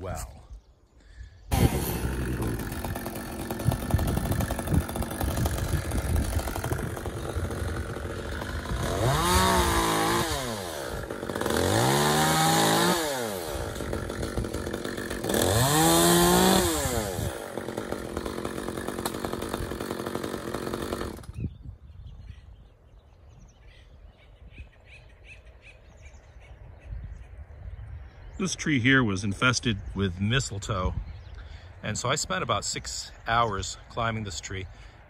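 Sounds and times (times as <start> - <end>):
chainsaw idling and revving: 1.5 - 21.4.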